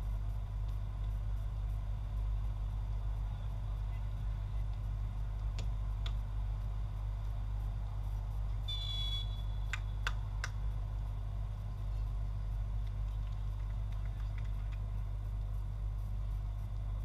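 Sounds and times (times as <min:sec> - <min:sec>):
referee's whistle blast: 0:08.7 - 0:09.6.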